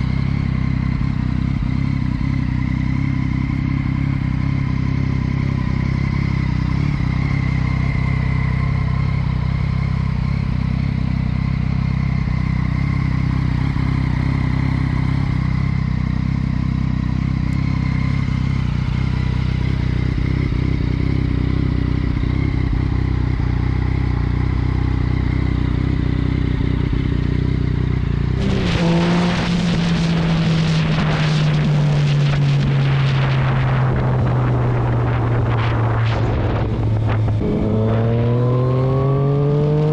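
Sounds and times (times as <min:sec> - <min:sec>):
motorcycle engine: 0:00.0 - 0:39.9
wind noise on microphone: 0:28.4 - 0:39.9.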